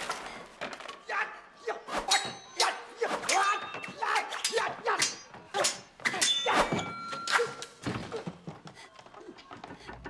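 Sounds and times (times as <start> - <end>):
fighters grunting and shouting: 1.0 - 7.6
sword blades clashing: 1.9 - 7.8.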